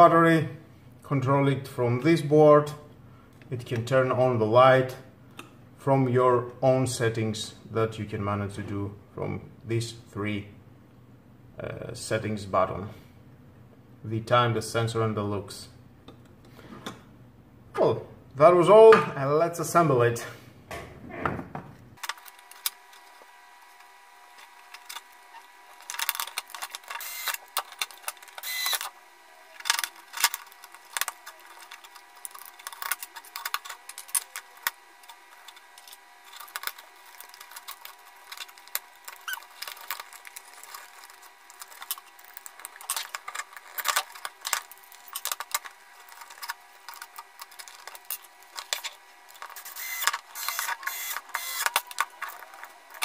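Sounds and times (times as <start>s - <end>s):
plastic parts clicking and clattering: 22.0s - 28.9s, 29.6s - 53.0s.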